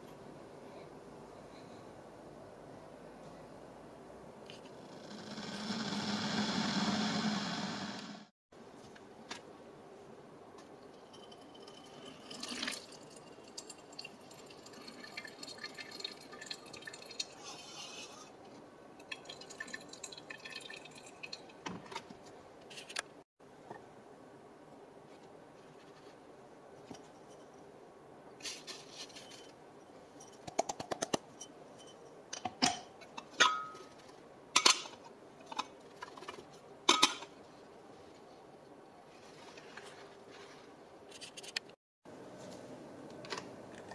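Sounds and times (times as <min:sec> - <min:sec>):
water trickling and dripping: 0:11.0 - 0:17.4, 0:19.0 - 0:21.6.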